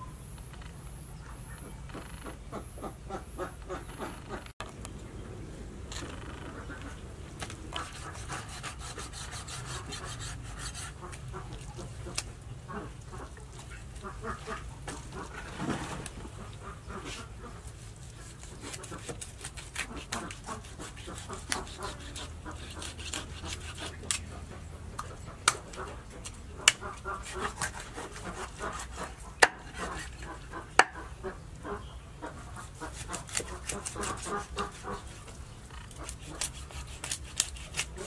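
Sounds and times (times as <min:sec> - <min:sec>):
knife scraping fish scales: 0:07.7 - 0:11.3, 0:17.2 - 0:24.4, 0:25.5 - 0:30.4, 0:32.6 - 0:38.0.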